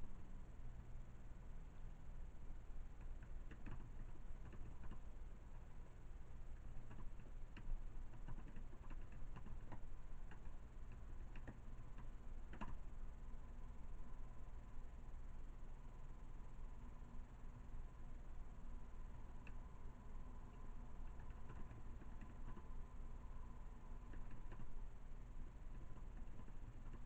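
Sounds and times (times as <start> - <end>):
low steady hum: 0.0 - 27.0
light clicks and taps: 3.0 - 5.7, 6.6 - 12.8.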